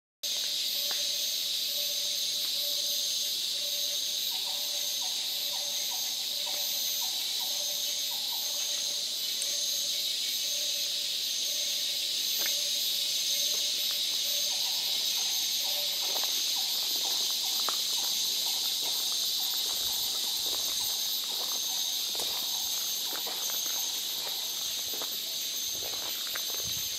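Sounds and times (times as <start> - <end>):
insect chorus buzzing drone: 0.2 - 26.9
pulsing insect call: 0.3 - 26.9
footsteps on forest path: 13.4 - 26.9.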